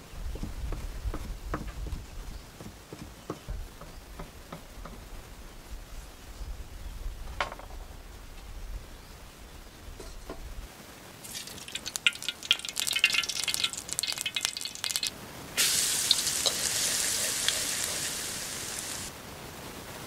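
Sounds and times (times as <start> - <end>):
garlic sizzling in oil: 11.2 - 19.1
hot oil crackling and popping: 11.2 - 19.1.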